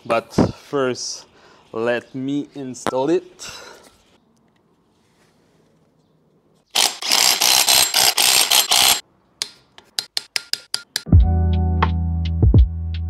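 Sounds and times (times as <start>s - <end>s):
ratchet wrench clicking: 6.8s - 9.0s.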